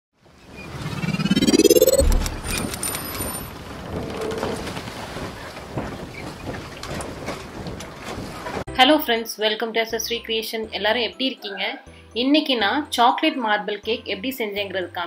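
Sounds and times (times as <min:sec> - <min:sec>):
rising whoosh: 0:00.6 - 0:03.0
steady rushing noise: 0:00.7 - 0:03.0
low boom: 0:01.0 - 0:02.8.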